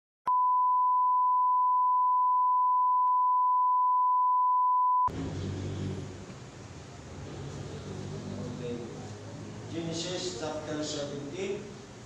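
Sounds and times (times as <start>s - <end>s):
electronic test tone beep: 0.3s - 5.1s
low room noise: 5.1s - 12.0s.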